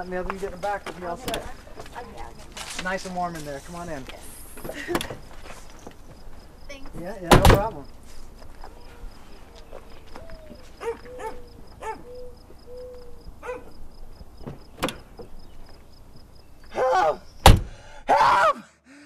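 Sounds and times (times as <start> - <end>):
car doors shutting: 4.6 - 5.3, 14.4 - 15.4, 17.4 - 17.8.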